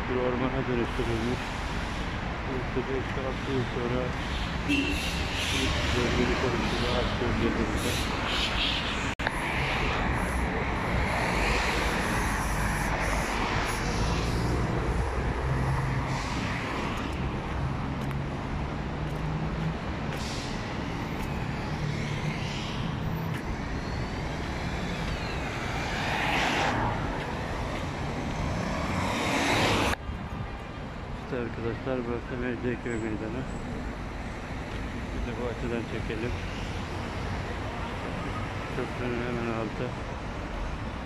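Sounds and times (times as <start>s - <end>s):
cars and buses driving past: 0.0s - 41.0s.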